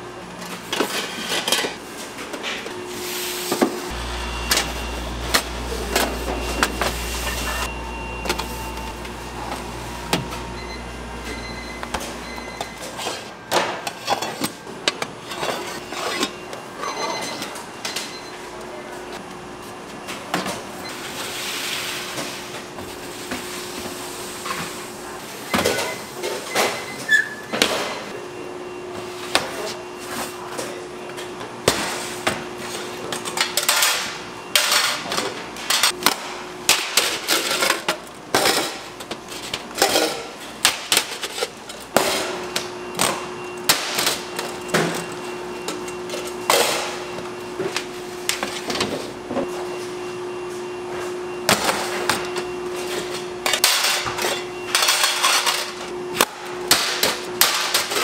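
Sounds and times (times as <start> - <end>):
steady machine hum: 0.0 - 26.4, 27.7 - 58.0
tools and trays clattering: 0.4 - 2.7, 11.3 - 18.3, 33.2 - 49.1, 51.5 - 55.9, 56.7 - 58.0.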